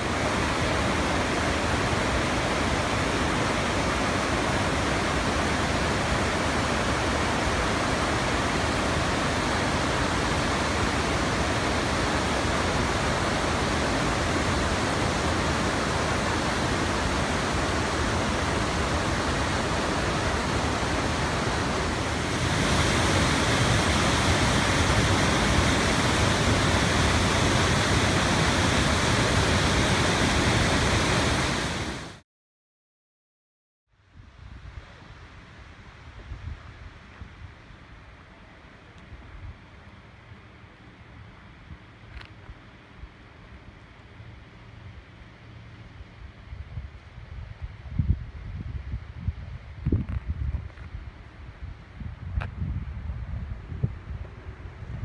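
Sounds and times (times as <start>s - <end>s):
water rushing over rocks: 0.0s - 32.2s
waterfall: 0.0s - 32.2s.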